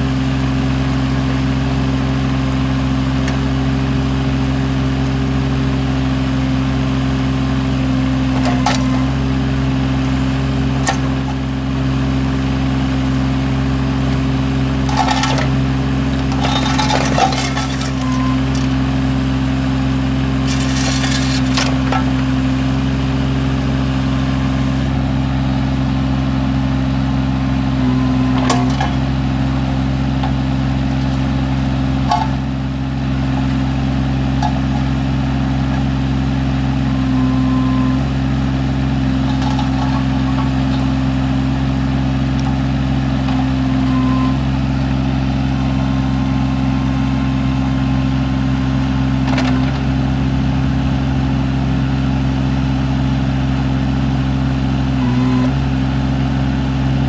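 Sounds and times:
diesel engine running: 0:00.0 - 0:57.0
hydraulic whine: 0:08.3 - 0:52.4.

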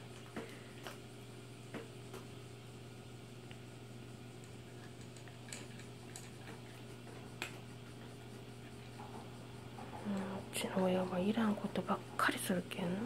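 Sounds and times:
steady low hum: 0:00.0 - 0:13.0
dog crunching kibble: 0:04.4 - 0:08.1.

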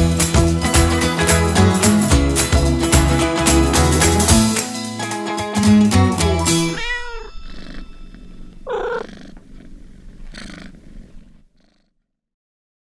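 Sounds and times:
cat meows: 0:06.5 - 0:10.3
cat purring: 0:06.5 - 0:12.1.

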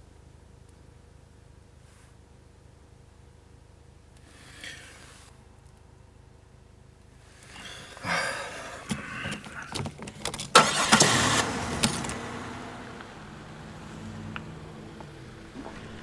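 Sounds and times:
car engine starting and idling: 0:07.3 - 0:16.0.

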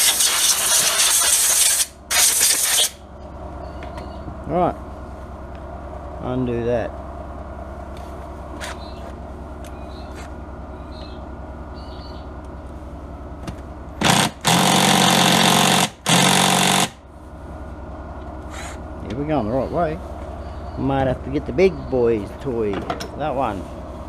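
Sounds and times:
steady low hum: 0:00.0 - 0:24.0
cordless power driver running: 0:14.0 - 0:17.0.

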